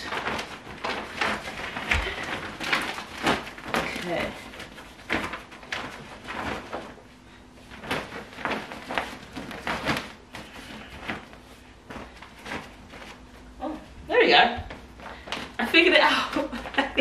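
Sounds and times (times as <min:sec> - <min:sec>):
plastic cover crinkling: 0:00.0 - 0:13.5.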